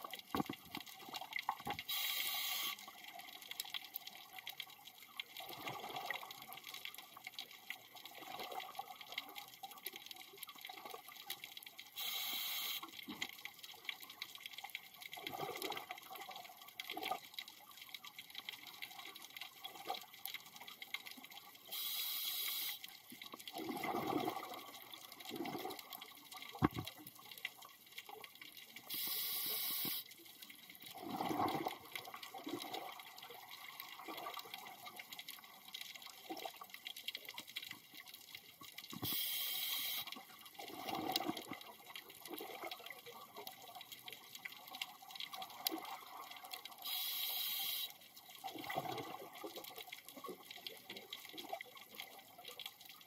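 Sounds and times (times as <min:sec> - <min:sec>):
regulator hissing inhales: 0:01.9 - 0:02.8, 0:21.7 - 0:22.8, 0:29.0 - 0:30.0, 0:39.0 - 0:40.1, 0:46.8 - 0:47.9
exhaled bubbles gurgling: 0:05.4 - 0:06.5, 0:15.2 - 0:17.1, 0:23.5 - 0:27.0, 0:30.9 - 0:35.0, 0:40.6 - 0:43.8, 0:45.3 - 0:47.1, 0:48.4 - 0:52.4.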